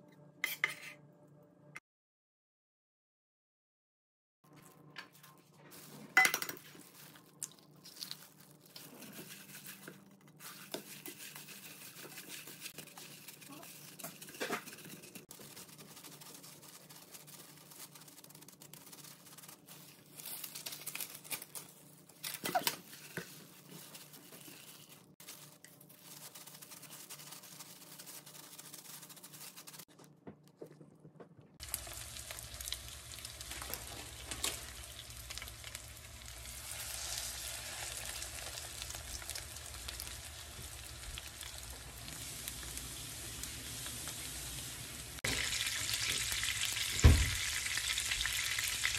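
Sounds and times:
hands squishing food mixture: 6.6 - 29.9
patties sizzling in oil: 31.6 - 48.9.

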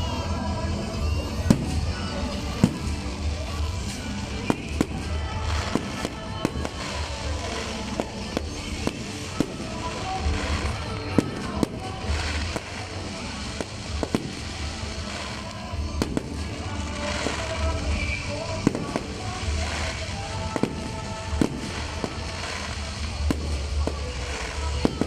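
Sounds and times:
background music: 0.0 - 25.0
fireworks bursting: 0.0 - 25.0.

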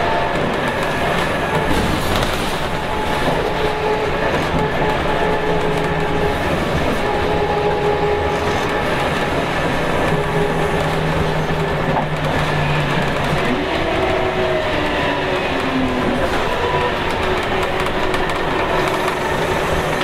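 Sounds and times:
bus engine drone with whine: 0.0 - 20.0.

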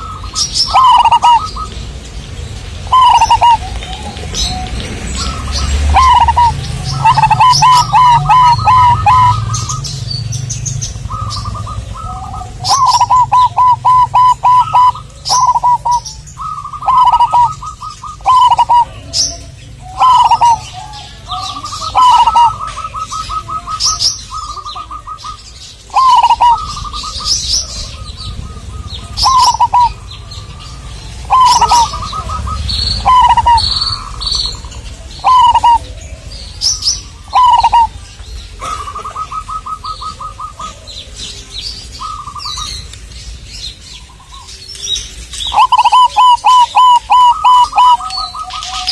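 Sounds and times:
small bird chirping: 0.0 - 1.8, 2.8 - 38.0
dove cooing: 0.0 - 1.9, 2.7 - 42.8, 44.0 - 48.9.

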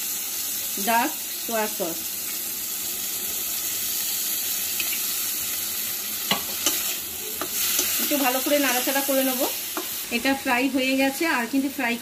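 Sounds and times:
vegetables sizzling in a pan: 0.0 - 12.0.

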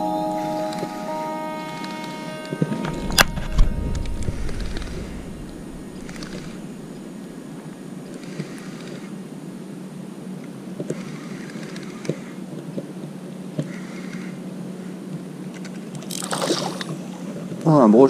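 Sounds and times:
fish splashing at surface: 16.0 - 17.2.

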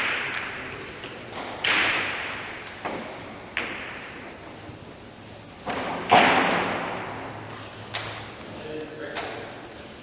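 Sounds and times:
billiard balls knocking: 0.0 - 4.3.

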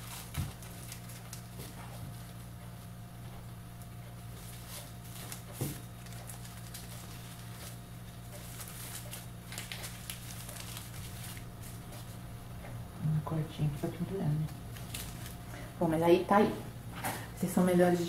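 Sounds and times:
paper and twine rustling: 0.0 - 2.8, 3.7 - 12.3, 14.3 - 15.7
steady low hum: 0.0 - 18.0.

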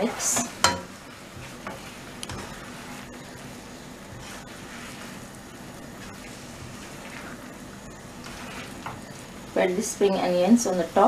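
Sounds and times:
sauce sizzling in a pan: 0.0 - 11.0
spoon stirring and clicking: 1.4 - 2.6.

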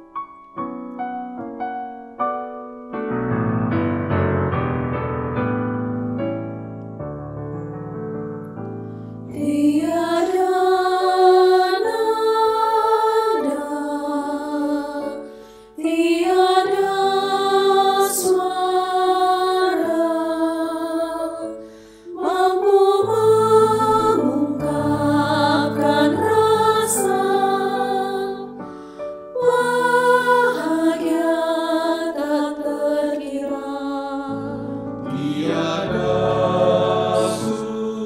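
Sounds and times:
piano: 0.0 - 38.0
women's choir singing a hymn: 9.3 - 28.6, 29.3 - 38.0.

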